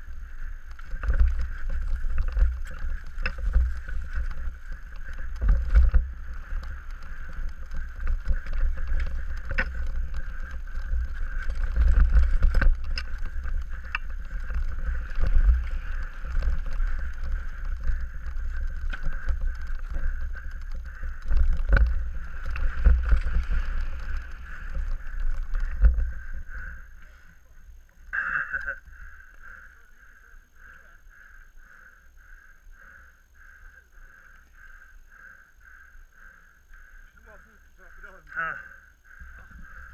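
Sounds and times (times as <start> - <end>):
bike knocking and rattling: 0.0 - 27.1
wind buffeting microphone: 0.0 - 27.1, 38.8 - 39.9.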